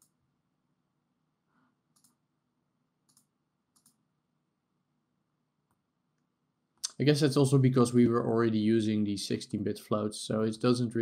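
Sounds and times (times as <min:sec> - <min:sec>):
computer mouse clicks: 0:01.9 - 0:02.2, 0:03.0 - 0:04.0.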